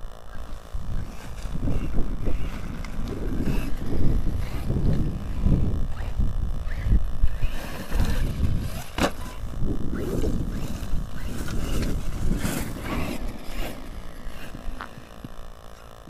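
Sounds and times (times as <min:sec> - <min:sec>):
electric motor whining: 0:00.0 - 0:16.0
wind buffeting microphone: 0:00.0 - 0:16.0
tyres crunching on gravel: 0:07.3 - 0:16.0.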